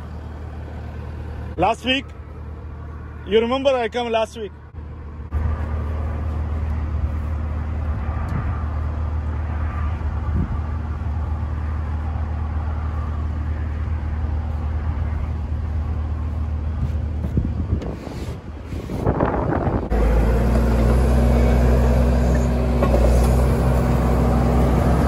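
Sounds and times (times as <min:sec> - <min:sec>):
truck engine droning: 0:00.0 - 0:25.0.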